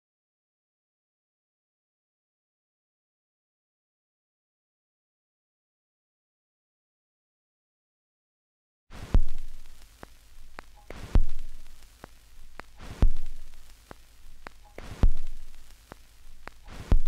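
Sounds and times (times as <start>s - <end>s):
kick drum and cymbal hits: 8.9s - 17.0s
light drum ticks: 9.0s - 17.0s.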